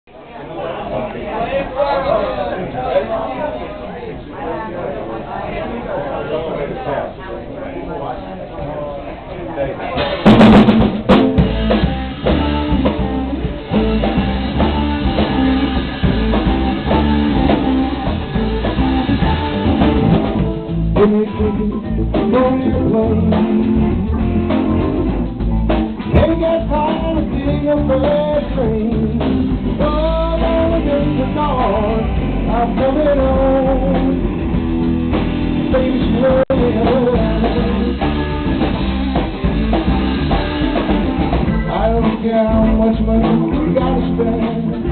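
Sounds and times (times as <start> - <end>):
drum kit: 10.0 - 44.9
electric guitar: 10.0 - 44.9
man singing: 20.9 - 24.6, 26.0 - 34.6, 35.5 - 38.9, 41.5 - 44.9.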